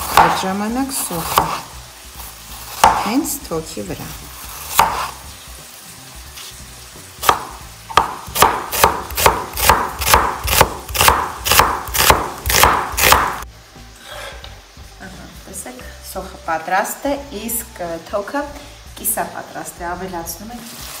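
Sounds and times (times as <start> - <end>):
knife chopping onion on board: 0.0 - 0.6, 1.2 - 1.6, 2.7 - 3.2, 4.6 - 5.1, 7.2 - 13.4.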